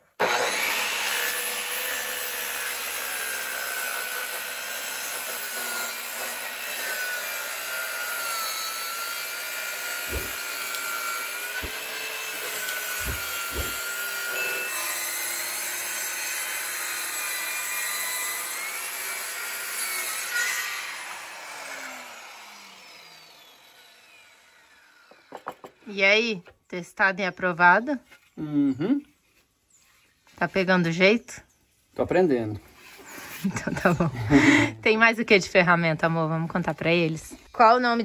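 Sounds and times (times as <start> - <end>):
circular saw cutting wood: 0.0 - 25.8, 32.7 - 37.0
dull knocks: 10.1 - 10.4, 13.0 - 13.8.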